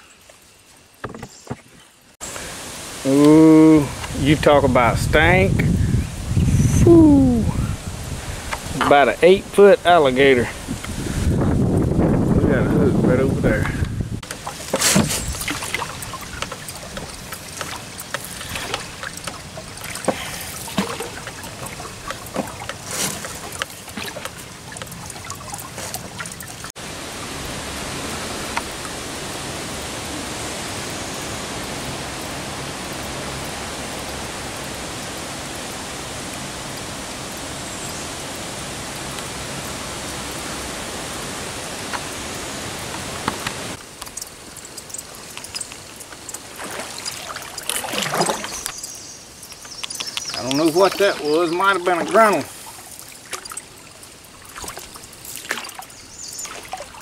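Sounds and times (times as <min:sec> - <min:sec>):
steady hiss: 0:00.0 - 0:24.8, 0:48.5 - 0:57.0
paddle knocks: 0:01.0 - 0:01.8, 0:13.6 - 0:24.4
canoe paddle splashing: 0:14.2 - 0:29.9, 0:45.3 - 0:57.0.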